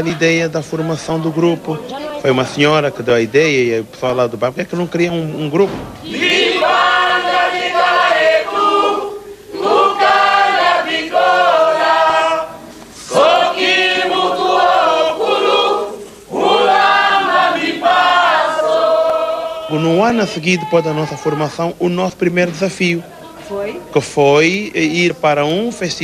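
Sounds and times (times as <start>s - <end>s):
chorus of voices singing: 0.0s - 2.0s, 6.0s - 21.4s.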